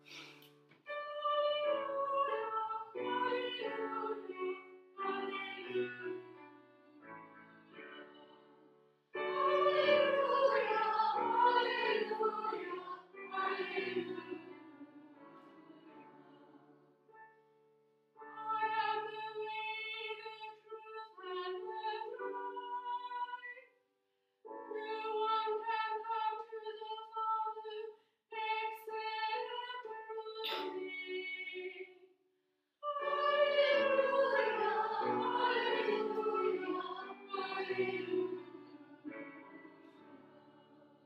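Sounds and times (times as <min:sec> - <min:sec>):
church singing: 0:00.9 - 0:06.3, 0:09.2 - 0:16.8, 0:18.4 - 0:23.5, 0:32.8 - 0:41.0.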